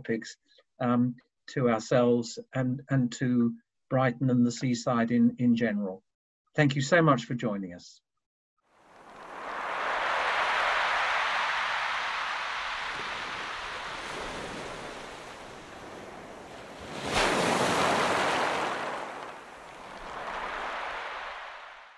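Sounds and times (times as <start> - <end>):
sea waves breaking: 8.8 - 21.9.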